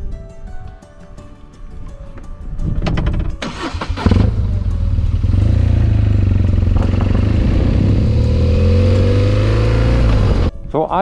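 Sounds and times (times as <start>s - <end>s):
wind and road noise: 1.6s - 10.8s
motorcycle engine running: 4.0s - 10.5s.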